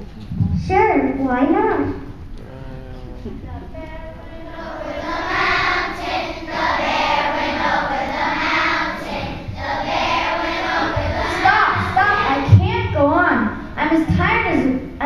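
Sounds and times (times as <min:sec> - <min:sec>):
children's choir singing: 0:04.2 - 0:12.6.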